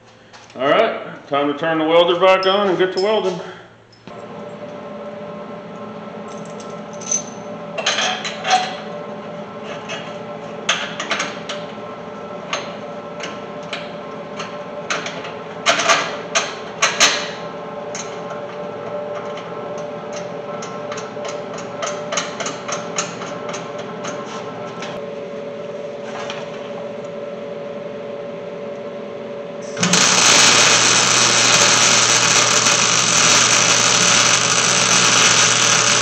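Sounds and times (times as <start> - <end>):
welder humming: 29.6 - 36.0.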